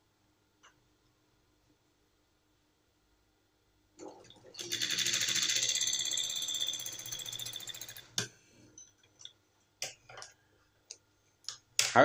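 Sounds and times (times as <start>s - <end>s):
sewing machine stitching: 4.1s - 8.0s.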